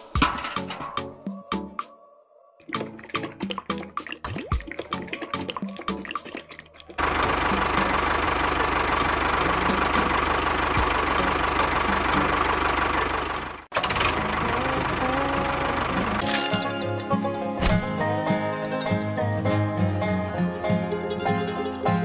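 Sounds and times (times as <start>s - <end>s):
engine running: 7.0s - 18.4s.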